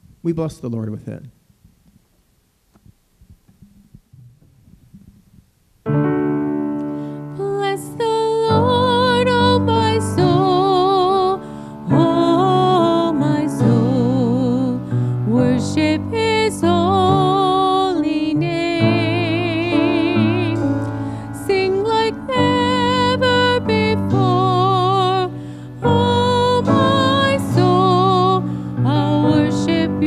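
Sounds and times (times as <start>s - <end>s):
grand piano: 5.8s - 30.0s
woman singing with vibrato: 7.3s - 30.0s.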